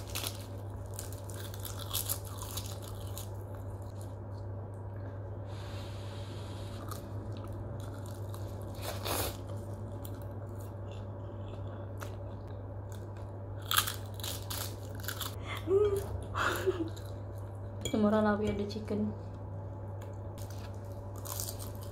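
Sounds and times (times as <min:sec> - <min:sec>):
seaweed crunching: 0:00.0 - 0:04.1, 0:20.4 - 0:21.9
person chewing: 0:00.0 - 0:04.2, 0:06.7 - 0:17.5, 0:20.0 - 0:21.9
steady low hum: 0:00.0 - 0:21.9.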